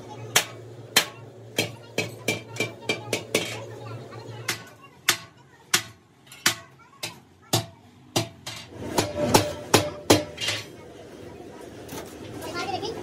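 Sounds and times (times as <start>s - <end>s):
hammer knocks on metal: 4.5s - 10.4s.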